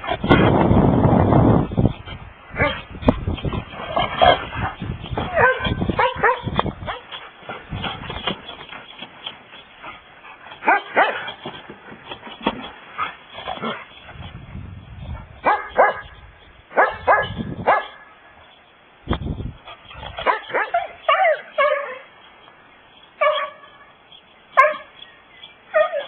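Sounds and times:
dogs barking and yipping: 1.8 - 14.4, 15.0 - 18.6, 19.6 - 26.0.

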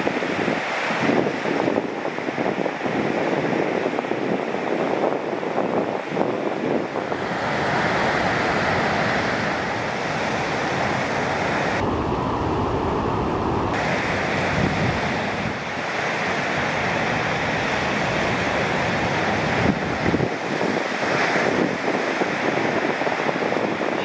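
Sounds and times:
ocean waves breaking: 0.0 - 24.0
wind buffeting microphone: 0.0 - 24.0.

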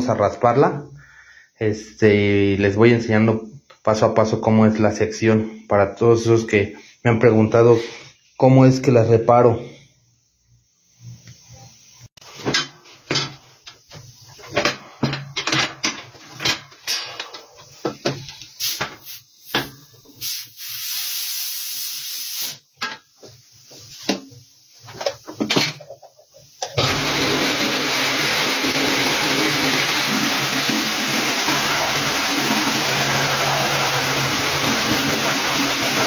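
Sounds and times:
compressed air hiss: 6.8 - 8.4, 17.6 - 25.4
metal clanks and knocks: 12.4 - 13.4, 14.5 - 17.5
pneumatic tire buffer running: 26.7 - 36.0.

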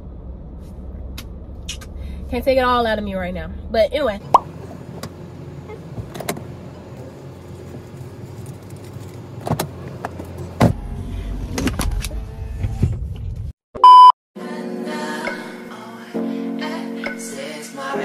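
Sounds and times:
car engine idling: 0.0 - 10.7
loud electronic beep: 13.8 - 14.1
music: 14.4 - 18.0.

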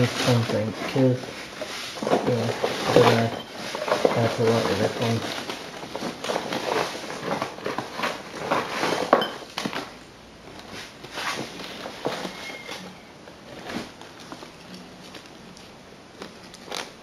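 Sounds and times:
rummaging through boxes: 0.0 - 17.0.

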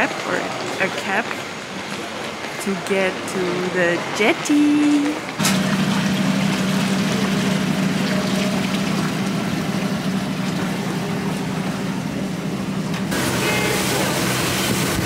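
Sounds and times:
boat engine humming: 2.6 - 15.0
rushing water: 5.2 - 12.5, 13.1 - 15.0.

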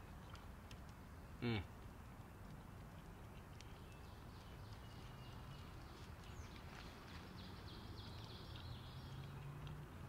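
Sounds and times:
faint birdsong chirps: 0.0 - 9.8.

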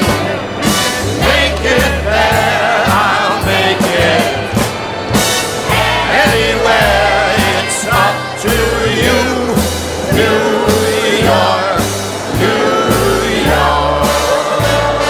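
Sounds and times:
song with singing over a beat: 0.0 - 15.0.

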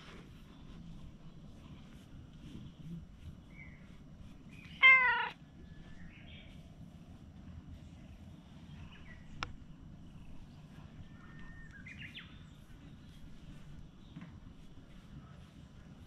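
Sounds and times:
low background rumble: 0.0 - 16.0
birds chirping: 2.6 - 6.7, 7.9 - 14.6.

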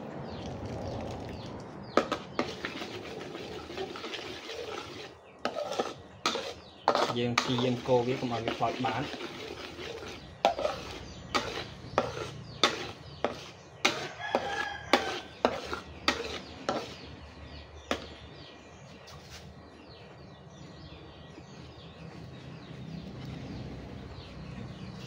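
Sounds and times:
metal spatula scraping a wok: 2.0 - 18.2.

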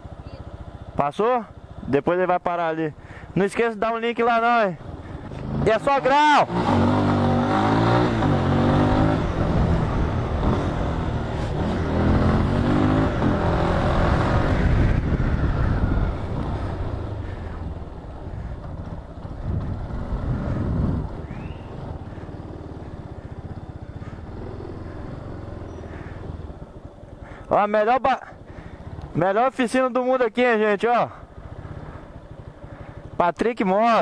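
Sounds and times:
motorcycle engine revving: 0.0 - 34.0
wind rushing over microphone: 9.1 - 17.5, 18.3 - 22.2.

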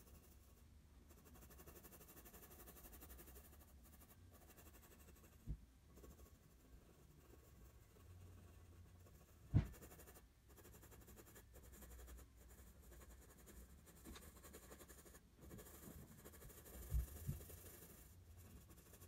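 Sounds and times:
pencil scratching on paper: 0.0 - 19.0
soft knocks: 9.5 - 9.8
sharp thump: 9.5 - 10.0.

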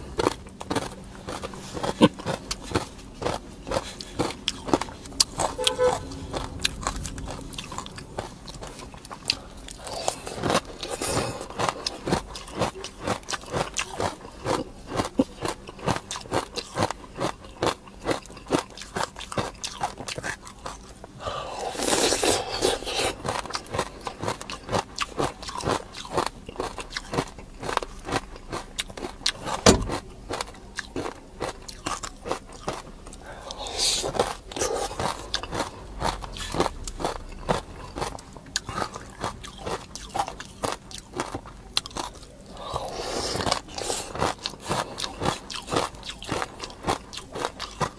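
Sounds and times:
crunching and chewing: 0.0 - 47.9.

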